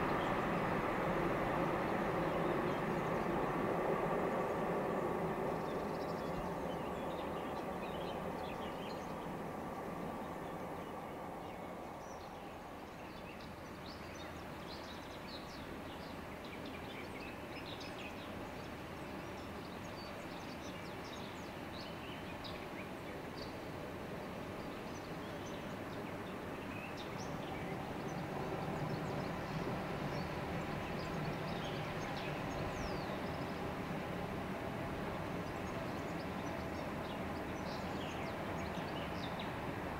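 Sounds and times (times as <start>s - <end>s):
distant train rumble and hum: 0.0s - 12.9s, 27.0s - 39.9s.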